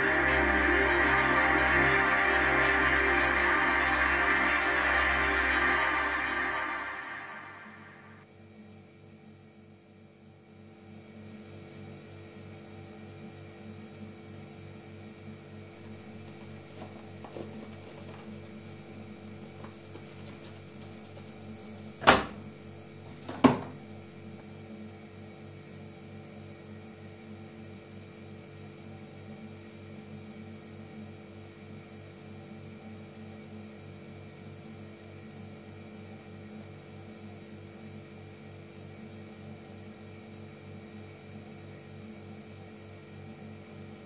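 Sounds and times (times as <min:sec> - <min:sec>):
steady hum: 0:00.0 - 0:08.3, 0:15.7 - 0:24.5.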